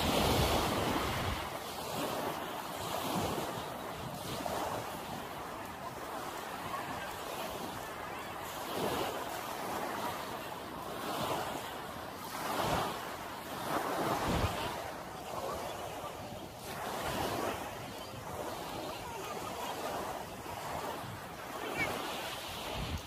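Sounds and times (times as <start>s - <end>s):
wind gusting on microphone: 0.0s - 5.4s, 12.3s - 23.0s
small waves washing on sand: 0.0s - 23.0s.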